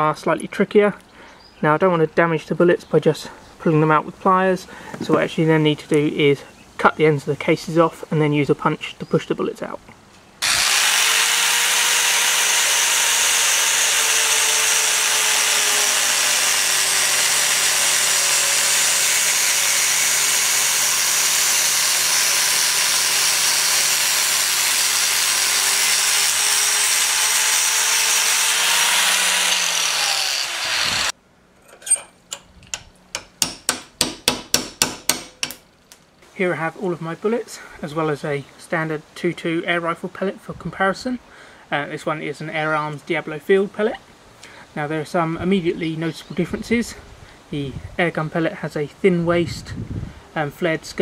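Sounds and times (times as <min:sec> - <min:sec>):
angle grinder cutting metal: 0:10.4 - 0:31.1
hammer tapping a punch: 0:33.2 - 0:35.6.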